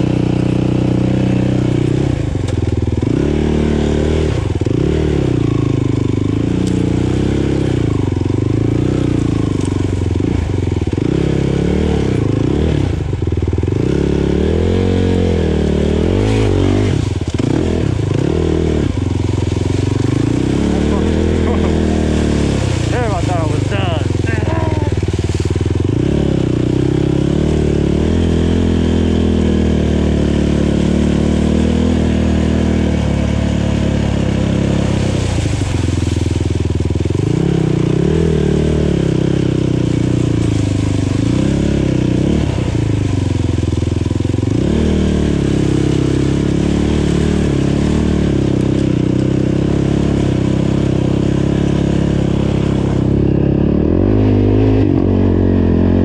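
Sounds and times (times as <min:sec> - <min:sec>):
quad engine revving: 0:00.0 - 0:56.0.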